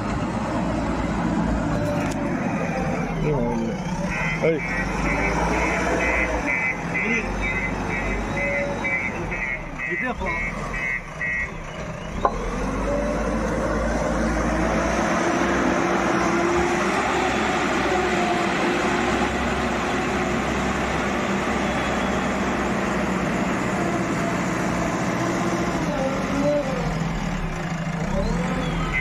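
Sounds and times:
diesel engine working under load: 0.0s - 29.0s
reversing beeper: 4.0s - 12.9s.

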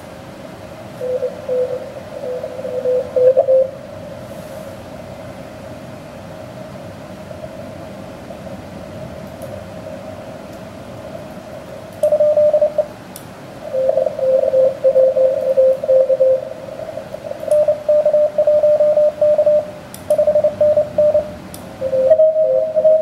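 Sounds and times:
radio band noise hiss: 0.8s - 4.9s, 10.8s - 23.0s
morse code tones: 1.0s - 3.8s, 12.0s - 13.0s, 13.6s - 23.0s.

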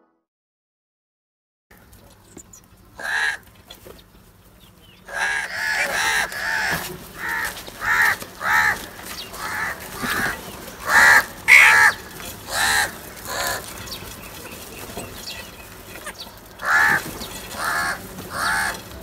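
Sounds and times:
crows cawing: 3.0s - 3.9s, 5.0s - 19.0s.

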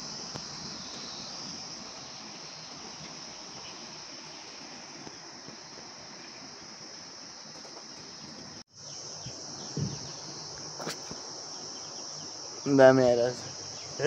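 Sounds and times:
high-pitched insect drone: 0.0s - 14.0s
faint knock: 9.7s - 10.2s.

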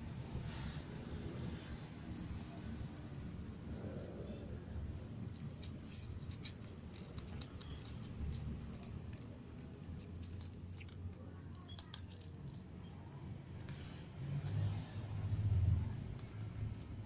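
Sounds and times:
cats crunching dry kibble: 5.0s - 17.0s.

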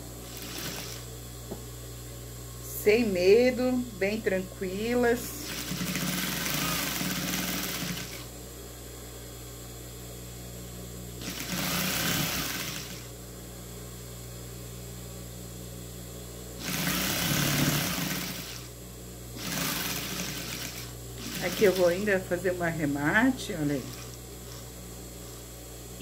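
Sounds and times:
low machine hum: 0.0s - 26.0s
sewing machine stitching: 0.3s - 1.0s, 5.4s - 8.3s, 11.2s - 13.1s, 16.6s - 18.7s, 19.4s - 22.1s.

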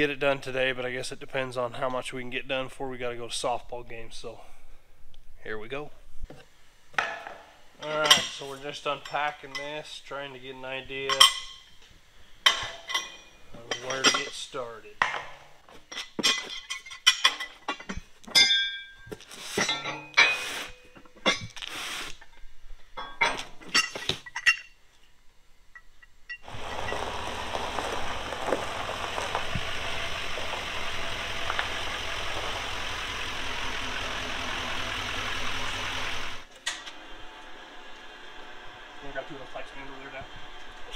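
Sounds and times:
metal parts clinking: 12.5s - 14.5s, 15.9s - 21.6s, 22.2s - 26.5s
pickup truck engine running: 26.4s - 40.9s.

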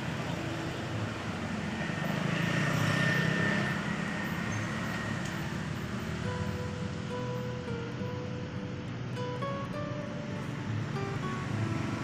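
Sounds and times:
motor vehicle passing: 0.0s - 7.5s.

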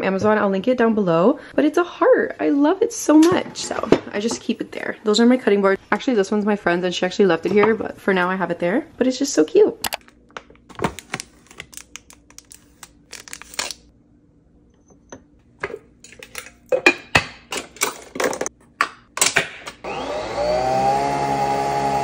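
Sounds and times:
packaging rustling: 9.9s - 13.9s
coffee machine whirring hum: 19.8s - 22.0s.

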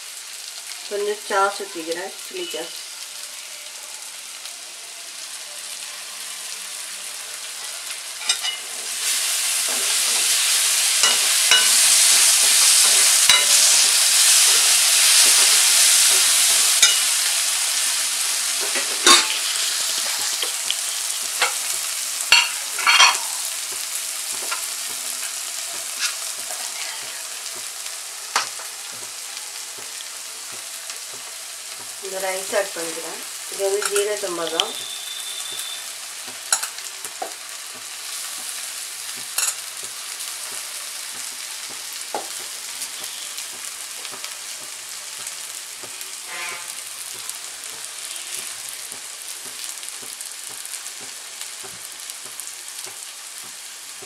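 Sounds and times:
vegetables sizzling in pan: 0.0s - 54.0s
metal spatula scraping pan: 18.6s - 20.5s, 25.9s - 27.0s, 46.2s - 46.9s.

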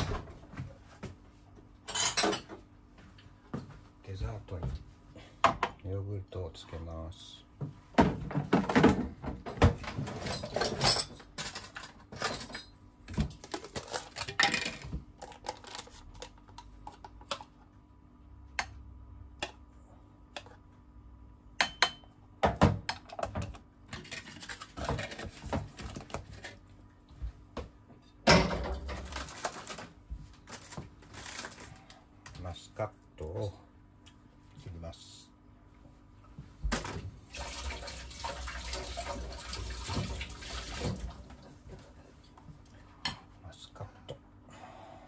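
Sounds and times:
kitchen things clattering: 1.9s - 2.6s, 8.0s - 16.0s, 23.0s - 26.6s, 28.3s - 29.9s.

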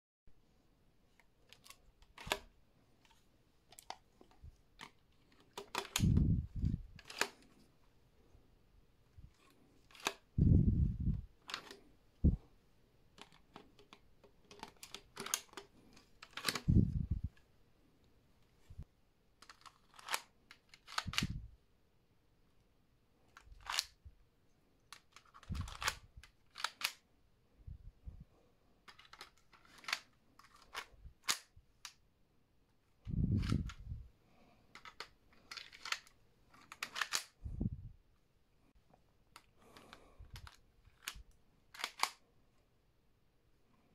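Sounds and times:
plastic clicks and clacks: 1.2s - 7.6s, 9.4s - 10.3s, 11.4s - 11.9s, 13.1s - 17.4s, 24.8s - 27.0s, 28.9s - 32.0s, 34.7s - 37.4s, 39.3s - 42.2s
wind rumble on microphone: 6.0s - 6.9s, 10.4s - 11.3s, 16.6s - 17.3s, 21.1s - 21.6s, 33.1s - 34.1s, 37.4s - 38.0s.

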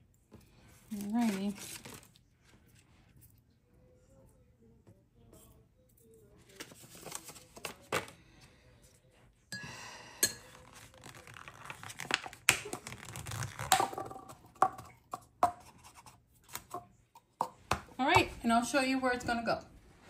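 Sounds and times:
plastic rustling: 0.8s - 2.9s.

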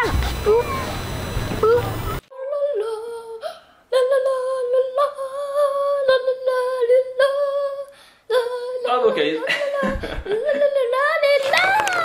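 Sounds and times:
high voice humming: 0.0s - 3.4s.

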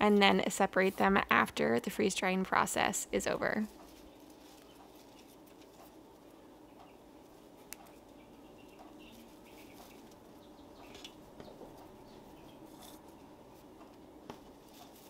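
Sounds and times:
low room hum: 0.0s - 15.0s
rustling of herb sprigs: 3.3s - 6.4s, 8.7s - 15.0s.

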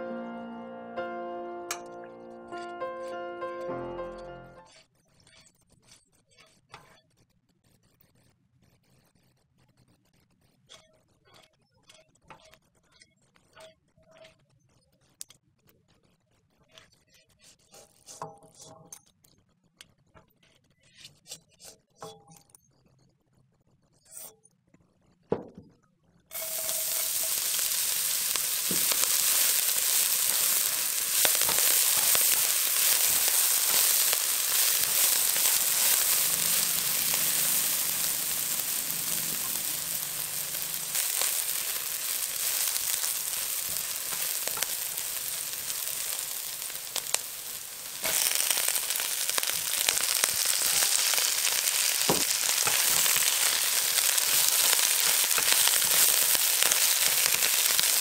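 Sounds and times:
spatula stirring in wok: 17.4s - 18.8s, 26.3s - 58.0s
food sizzling in hot oil: 26.3s - 58.0s.

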